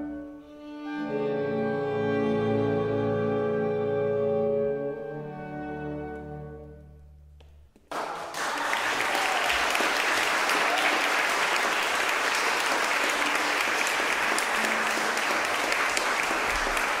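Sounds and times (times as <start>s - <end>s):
audience applause: 7.9s - 17.0s.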